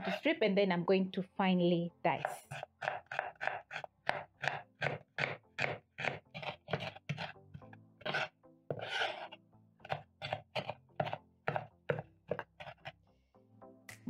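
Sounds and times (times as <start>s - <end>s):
knife scraping board: 0.0s - 0.2s, 2.3s - 13.0s
soft background music: 0.0s - 14.0s
knife chopping on wooden board: 2.2s - 13.0s.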